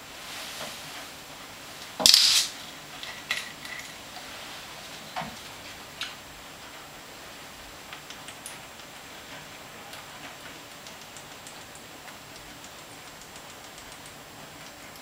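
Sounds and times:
bottle cap hiss: 2.0s - 3.9s.

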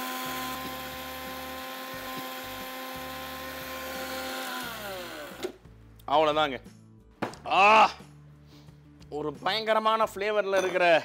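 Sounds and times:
mixer grinder running: 0.0s - 5.6s
motor winding down whine: 0.0s - 5.6s.

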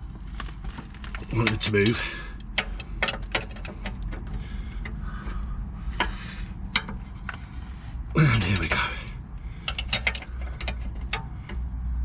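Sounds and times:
spanner clicking on a nut: 1.0s - 7.4s, 9.6s - 11.9s.

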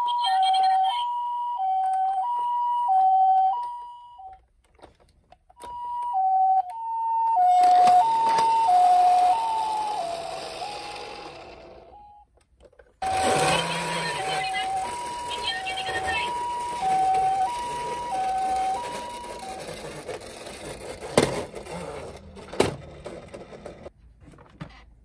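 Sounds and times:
toy electronic two-tone siren: 0.0s - 4.4s, 5.6s - 12.3s, 13.0s - 20.9s.

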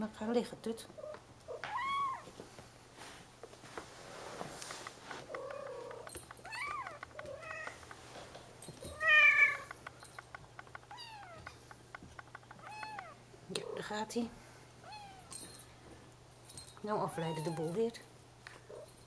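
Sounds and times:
faint scratchy ticks: 4.5s - 8.1s, 9.5s - 13.6s.

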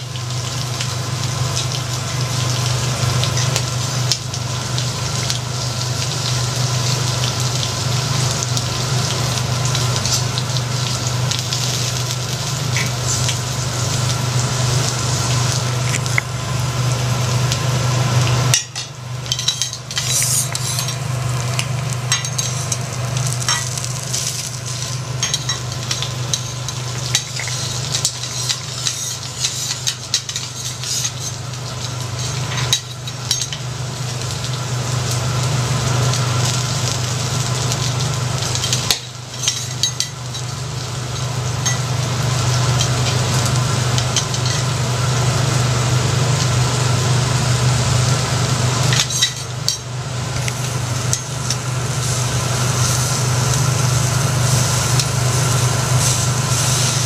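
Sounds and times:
prawns sizzling on griddle: 0.0s - 57.0s
metal spatula scraping: 19.4s - 21.1s, 27.4s - 31.4s.

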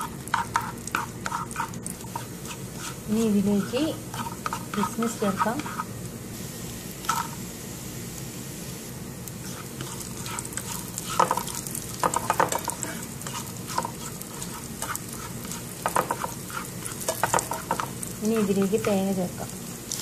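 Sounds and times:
spoon scraping a pan: 0.0s - 5.9s, 7.0s - 7.4s, 9.4s - 19.0s
nuts frying in a pan: 0.0s - 20.0s.

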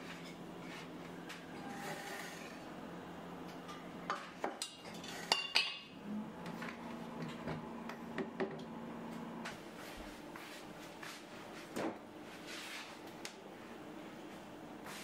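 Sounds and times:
metal pot and glass teapot clinking: 4.6s - 5.9s.

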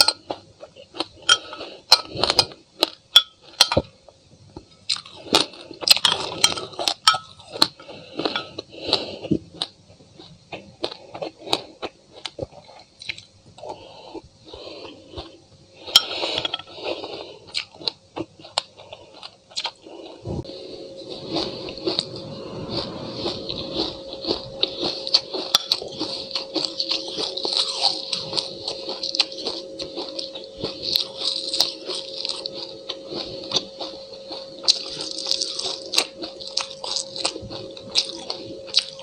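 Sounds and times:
crunchy chewing: 4.6s - 39.0s.

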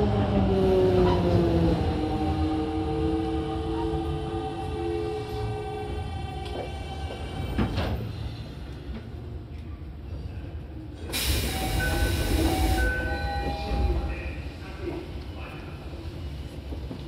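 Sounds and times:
loud hiss of air: 11.1s - 12.9s.

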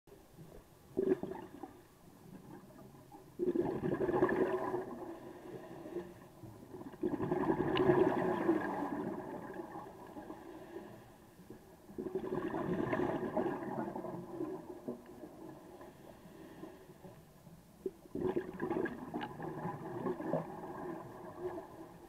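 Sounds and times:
underwater exhaled bubbles rushing: 0.9s - 5.2s, 6.6s - 10.5s, 11.9s - 15.8s, 18.1s - 22.0s
quiet in-breaths: 4.8s - 6.7s, 9.9s - 12.0s, 14.5s - 17.9s.

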